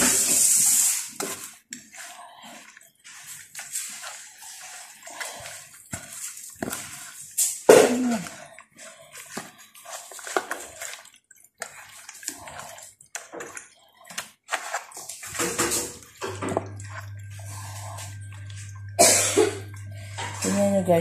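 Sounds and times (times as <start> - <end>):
hands squelching wet meat: 0.0 - 15.4
low steady hum: 16.1 - 21.0.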